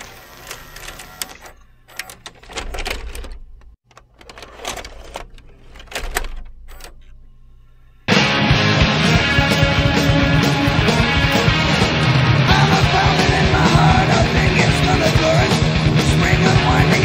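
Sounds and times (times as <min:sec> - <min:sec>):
tape mechanism clicking and clattering: 0:00.0 - 0:07.2.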